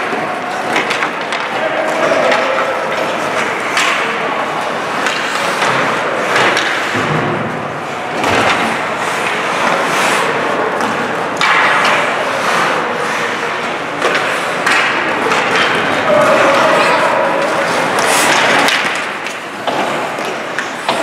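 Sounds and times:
sticks and puck clacking: 0.0s - 21.0s
skate blades scraping ice: 8.2s - 21.0s.

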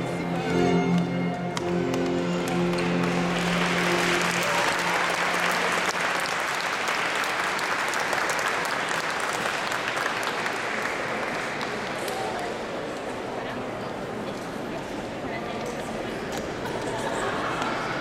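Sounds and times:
audience applauding: 0.9s - 12.5s.

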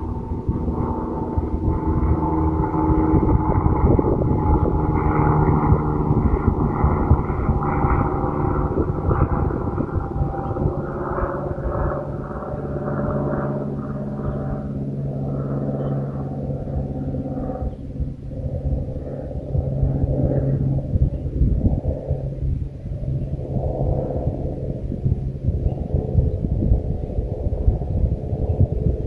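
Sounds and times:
road noise rumbling: 0.0s - 15.2s
vehicle engine hum: 0.0s - 29.0s.

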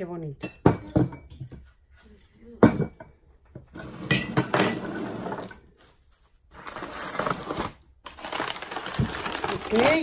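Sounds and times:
ceramic canisters clinking: 3.8s - 5.5s.

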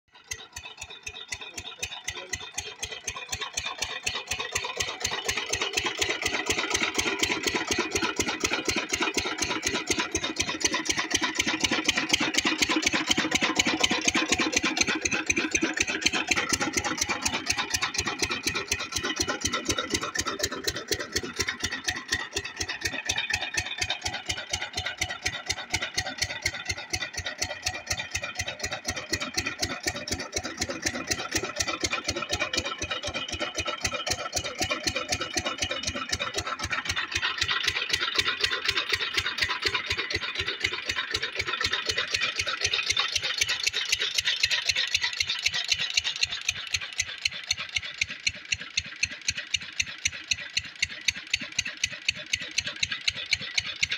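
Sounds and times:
diesel engine chugging: 0.1s - 53.9s.

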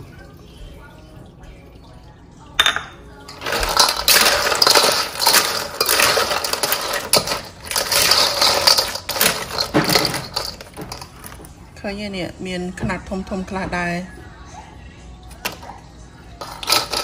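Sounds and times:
clam shells clinking together: 2.6s - 11.4s, 16.4s - 17.0s.

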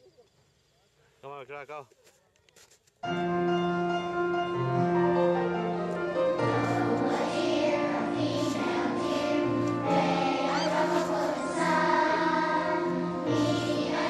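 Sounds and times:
music with long held chords: 3.2s - 14.0s.

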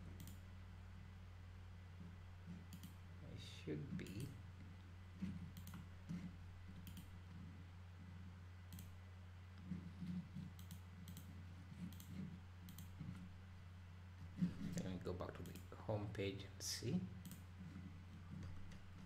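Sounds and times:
faint low hum: 0.0s - 19.0s
computer mouse clicks: 0.1s - 0.4s, 2.6s - 3.0s, 4.0s - 4.4s, 5.2s - 7.3s, 8.7s - 9.0s, 9.6s - 13.2s, 14.6s - 15.7s, 17.2s - 17.4s.

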